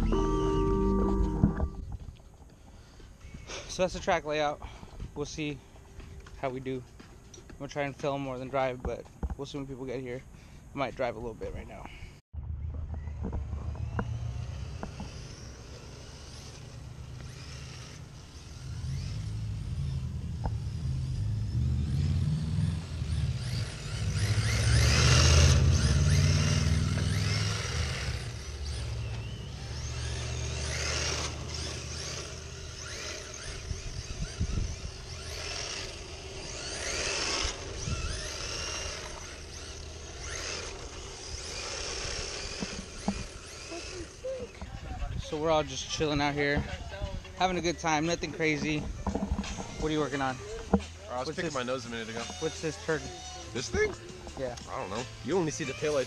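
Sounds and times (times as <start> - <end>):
rc car electric motor whining: 13.5 - 46.4, 47.3 - 56.0.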